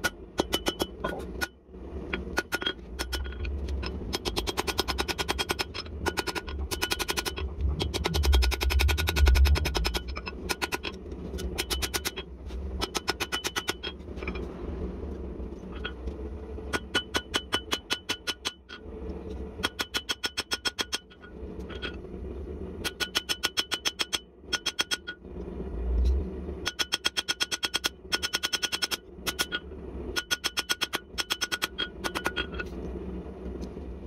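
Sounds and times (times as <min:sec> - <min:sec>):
steady low drone: 0:05.4 - 0:12.8, 0:25.2 - 0:26.7.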